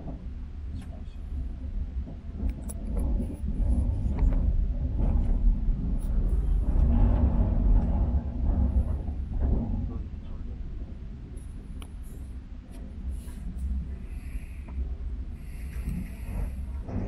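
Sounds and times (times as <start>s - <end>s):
train cabin rumble: 0.0s - 17.0s
light clicks and ticks: 2.4s - 3.4s.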